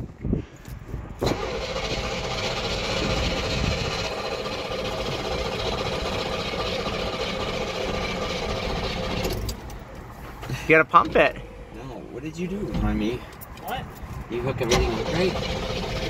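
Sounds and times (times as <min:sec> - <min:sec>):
car engine cranking on starter: 0:01.2 - 0:09.8, 0:14.4 - 0:16.0.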